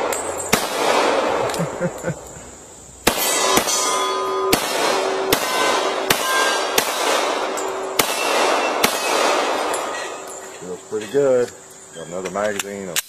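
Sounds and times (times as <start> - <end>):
pistol shots: 0.0 - 1.8, 3.0 - 10.6
steel target ringing: 3.1 - 11.5.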